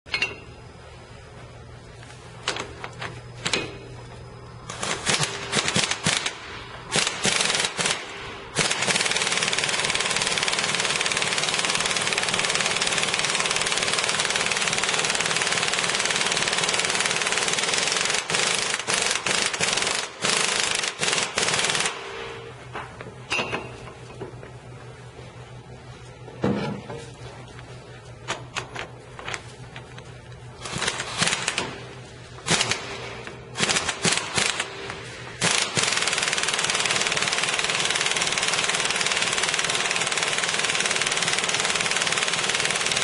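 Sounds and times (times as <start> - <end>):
impact wrench hammering: 23.3 - 24.3.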